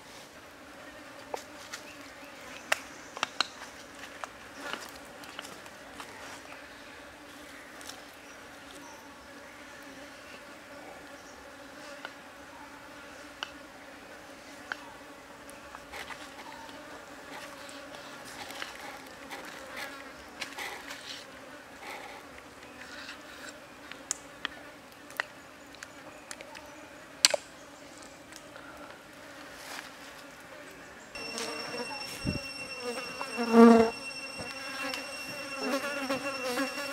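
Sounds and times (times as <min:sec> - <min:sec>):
insect buzzing: 0:31.2 - 0:36.9.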